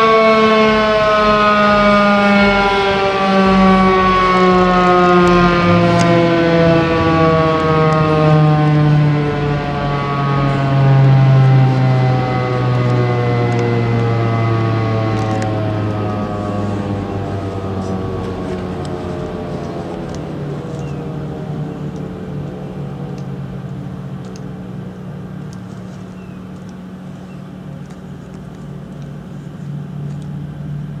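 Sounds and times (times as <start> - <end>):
siren winding down: 0.0 - 24.5
steady low hum: 0.0 - 31.0.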